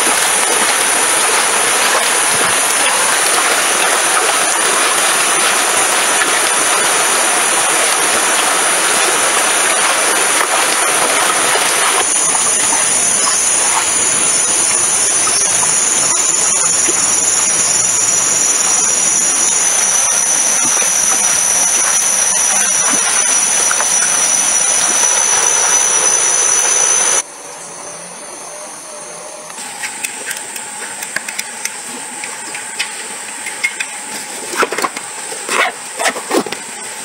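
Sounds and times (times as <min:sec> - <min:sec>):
stream water rushing: 0:00.0 - 0:27.2
high-pitched insect drone: 0:00.0 - 0:30.1.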